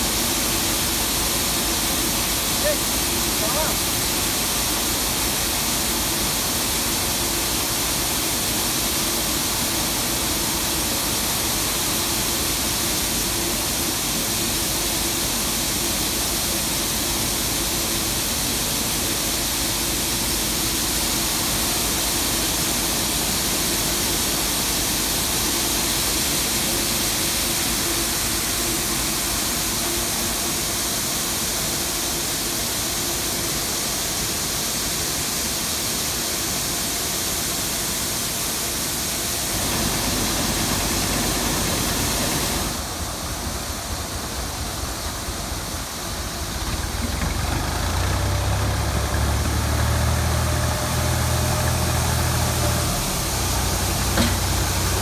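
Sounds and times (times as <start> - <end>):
machinery rushing noise: 39.0 - 43.9, 44.5 - 55.0
low machine hum: 39.2 - 55.0.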